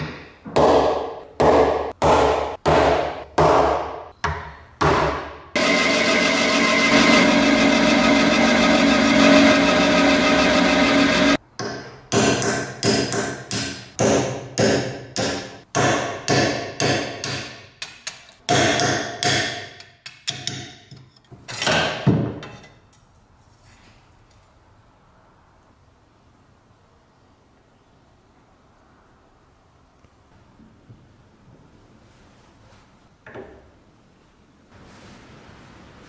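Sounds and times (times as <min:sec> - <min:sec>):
hammer striking metal: 0:04.8 - 0:20.8
power tool running: 0:05.6 - 0:11.4.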